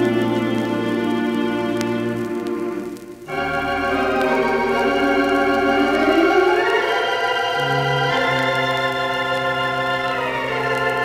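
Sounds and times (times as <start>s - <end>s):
pipe organ sustained chord: 0.0s - 11.0s.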